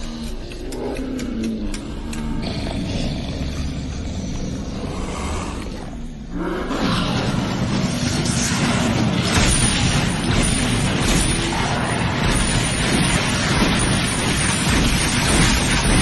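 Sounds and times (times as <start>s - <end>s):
dogs growling: 0.0s - 7.5s.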